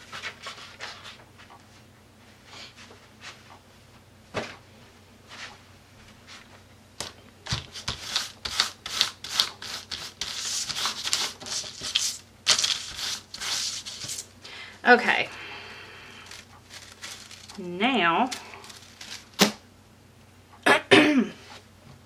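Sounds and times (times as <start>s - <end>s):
hand rubbing on paper: 7.8s - 14.3s.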